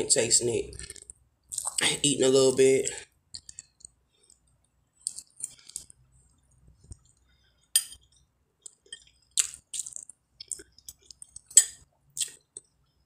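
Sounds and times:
lip smacks while eating: 8.6s - 12.7s.

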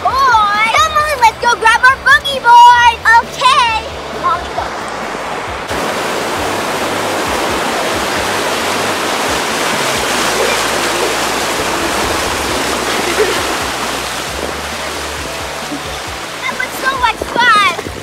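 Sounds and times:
surf washing up beach: 0.1s - 18.0s.

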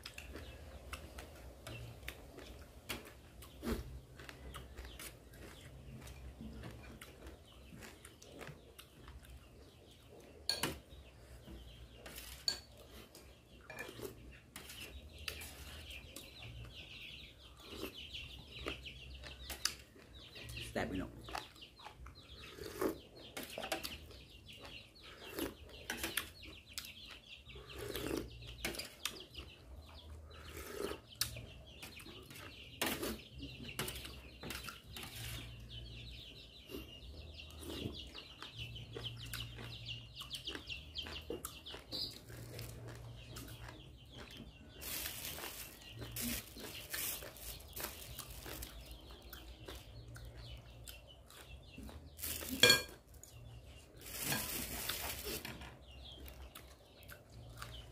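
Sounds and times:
chewing: 0.0s - 10.4s, 17.4s - 20.2s, 21.3s - 35.5s, 36.6s - 53.5s, 56.2s - 57.9s.

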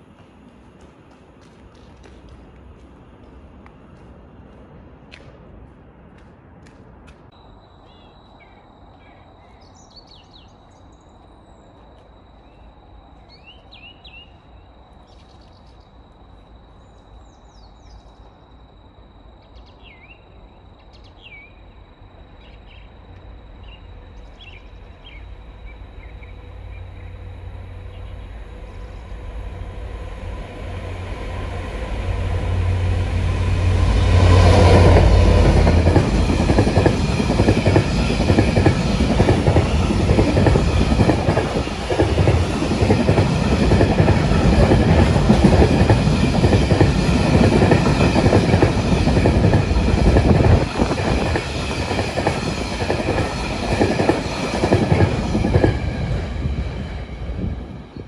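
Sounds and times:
train wagons running past: 0.0s - 17.2s, 17.8s - 58.0s
diesel locomotive engine rumble: 21.7s - 58.0s.

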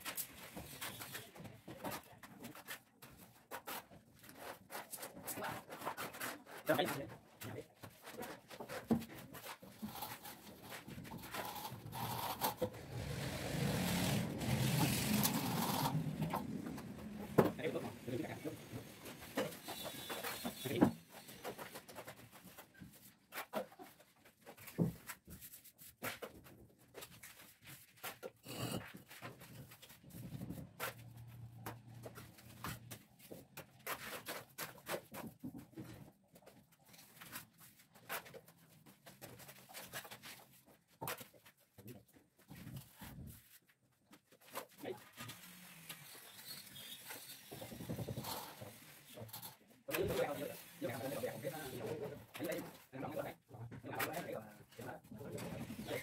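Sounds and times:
tool scraping wet mortar: 8.3s - 22.1s, 45.1s - 52.8s
trowel scraping wet mortar: 11.2s - 17.4s.

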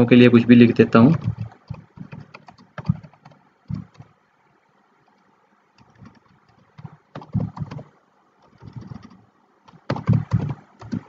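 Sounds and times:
keyboard typing: 1.0s - 4.1s, 5.8s - 11.0s.

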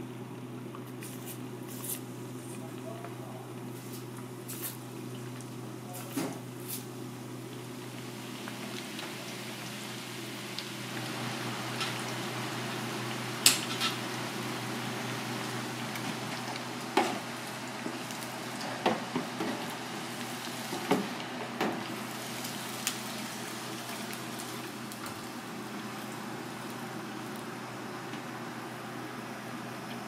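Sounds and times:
fish sizzling in hot oil: 6.4s - 27.9s.

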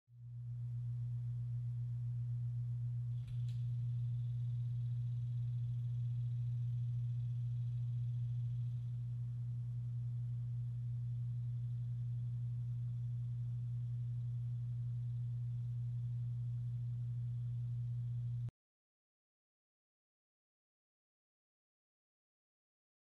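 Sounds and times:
faint buzz: 0.2s - 18.5s
low electrical hum: 0.2s - 18.5s.

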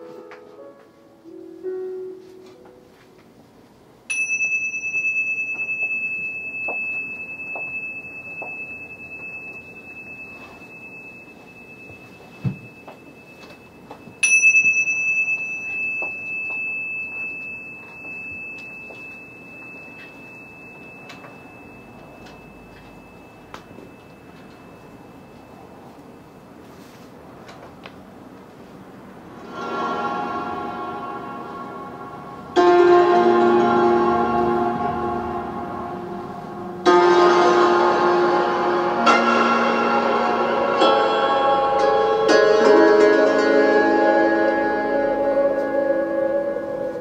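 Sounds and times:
piano notes: 0.0s - 3.5s, 29.4s - 47.0s
small bell ringing: 4.1s - 26.4s.

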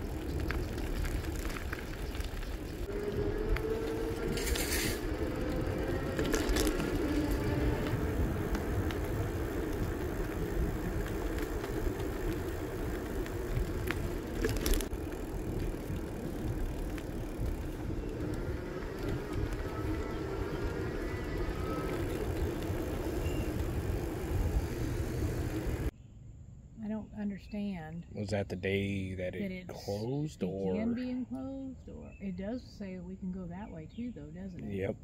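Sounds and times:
constant hum: 0.0s - 25.9s, 26.5s - 35.0s
vehicle rumble: 0.0s - 26.0s, 26.8s - 35.0s.

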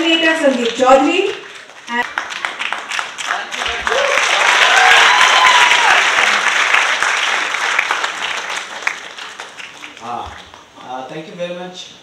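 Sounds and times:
audience applauding: 0.4s - 10.8s
drawn-out cheering shout: 3.8s - 6.3s.

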